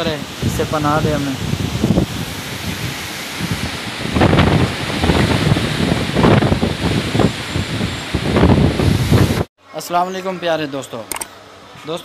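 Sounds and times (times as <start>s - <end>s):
wind buffeting microphone: 0.0s - 9.5s.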